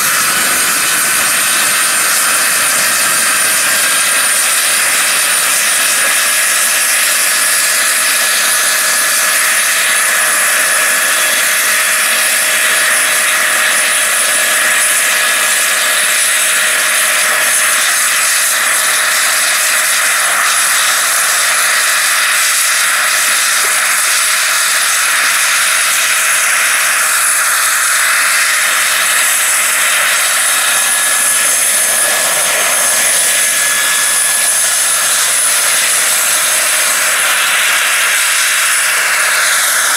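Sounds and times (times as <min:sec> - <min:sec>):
rotor blades whooshing: 0:00.0 - 0:07.6, 0:27.1 - 0:39.9
model helicopter turbine whine: 0:00.0 - 0:39.9.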